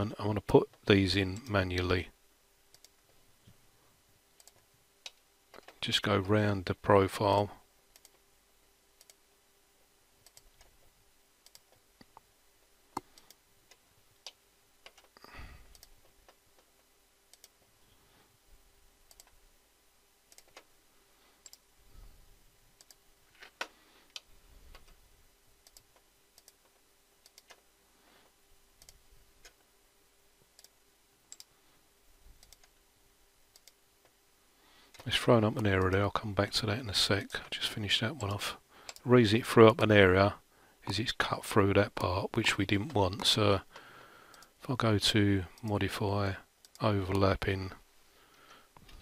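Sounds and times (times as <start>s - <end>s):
faint steady hum: 0.0s - 49.0s
computer mouse clicks: 2.7s - 3.0s, 4.4s - 5.8s, 7.9s - 8.2s, 9.0s - 9.2s, 10.2s - 10.8s, 11.4s - 12.2s, 13.0s - 16.7s, 17.3s - 17.7s, 19.1s - 19.4s, 20.3s - 20.7s, 21.4s - 21.6s, 22.8s - 25.0s, 25.6s - 27.6s, 28.8s - 29.6s, 30.6s - 31.5s, 32.4s - 32.8s, 33.5s - 33.8s, 44.3s - 44.5s.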